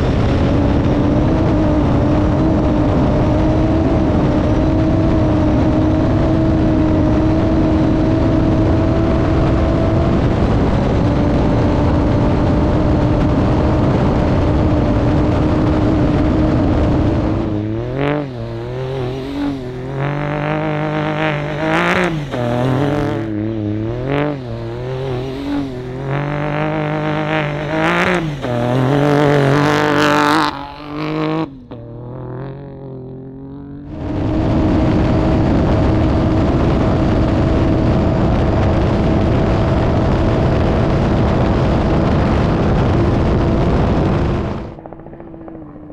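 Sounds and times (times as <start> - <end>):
truck engine revving: 0.0 - 45.9
wind and terrain noise: 0.0 - 45.9.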